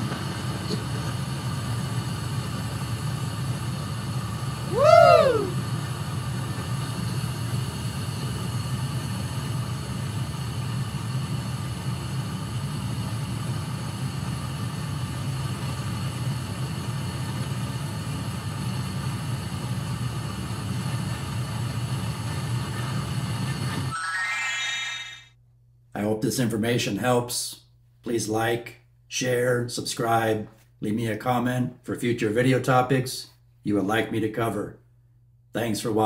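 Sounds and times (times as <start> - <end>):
gas furnace rumble: 0.0 - 23.9
whining tones: 23.9 - 25.3.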